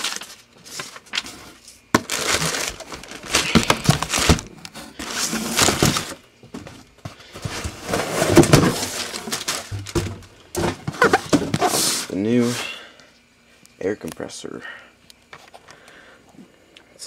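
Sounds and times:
cardboard and plastic wrap rustling: 0.0 - 12.6.

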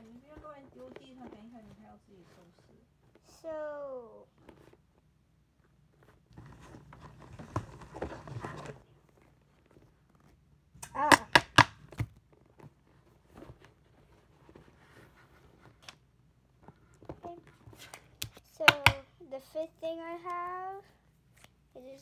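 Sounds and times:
rummaging in a backpack: 5.9 - 10.4.

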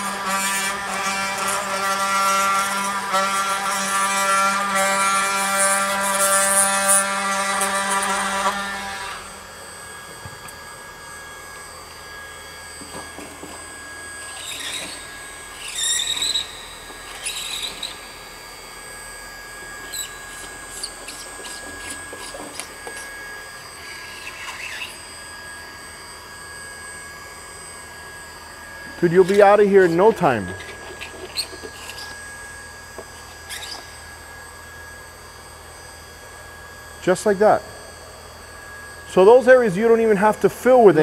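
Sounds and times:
scraper rasping on plastic: 0.0 - 9.2
oscillating multi-tool buzzing: 0.0 - 41.0.

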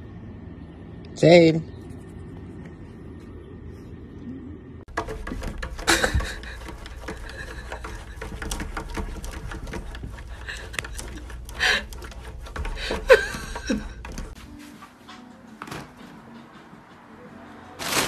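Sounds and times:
cat paws tapping on glass: 4.9 - 14.4.

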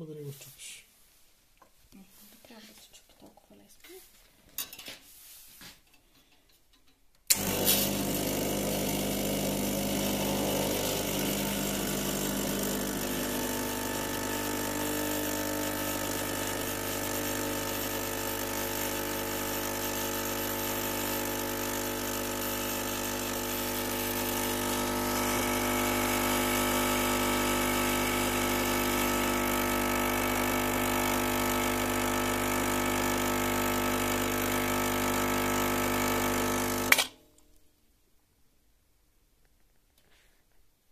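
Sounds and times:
espresso machine pump humming: 7.3 - 37.1.

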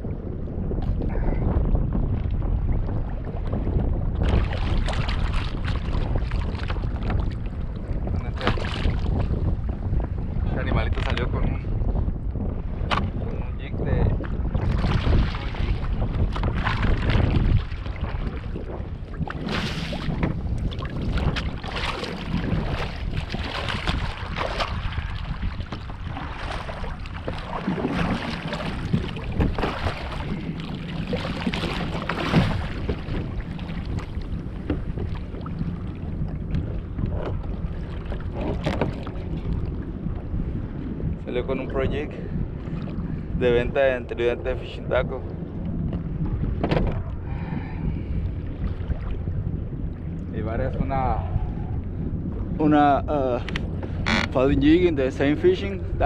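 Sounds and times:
water sloshing against hull: 0.0 - 56.0
wind buffeting microphone: 0.0 - 56.0
paddle strokes splashing: 4.2 - 7.4, 14.2 - 39.7.

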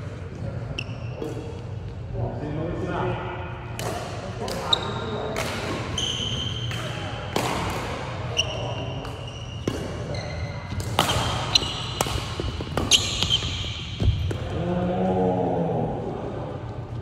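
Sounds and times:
sneakers squeaking on gym floor: 0.6 - 1.7, 4.6 - 7.0, 8.3 - 14.5
rackets striking shuttlecock: 3.7 - 14.5.

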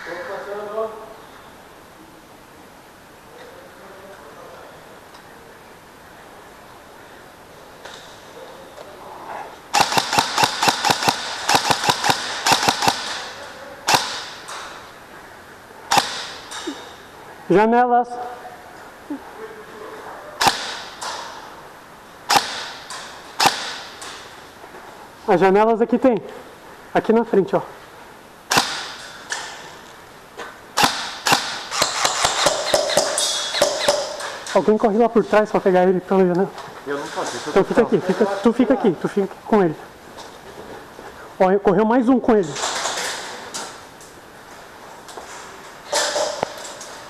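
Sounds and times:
airsoft gun shots: 9.7 - 14.5, 15.9 - 16.6, 20.4 - 21.3, 22.3 - 24.2, 28.5 - 29.1, 30.8 - 34.4.

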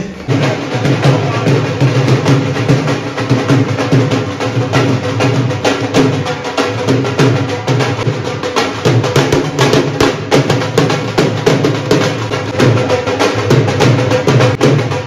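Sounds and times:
drums beaten in fast rhythm: 0.0 - 15.0.

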